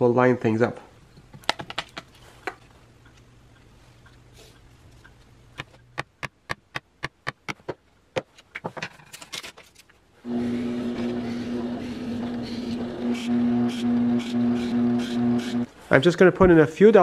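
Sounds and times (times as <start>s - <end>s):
drill press motor humming: 10.3s - 15.7s.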